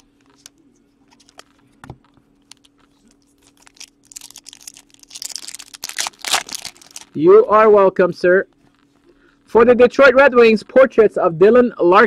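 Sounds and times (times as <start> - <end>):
wrapper crinkling: 1.1 - 7.2.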